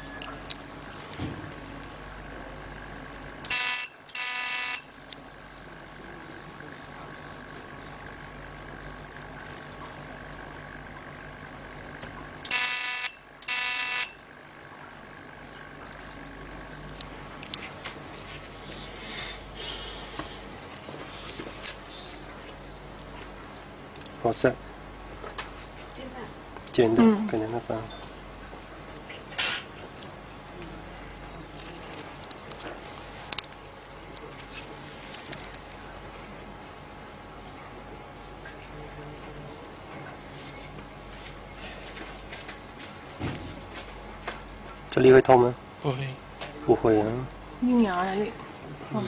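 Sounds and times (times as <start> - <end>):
steady low hum: 0.0 - 49.0
short buzzing beeps: 3.4 - 5.0, 12.4 - 14.3.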